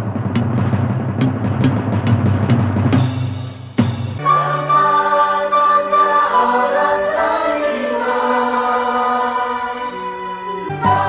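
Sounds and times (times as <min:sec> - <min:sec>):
choir singing held chords: 0:04.2 - 0:11.0.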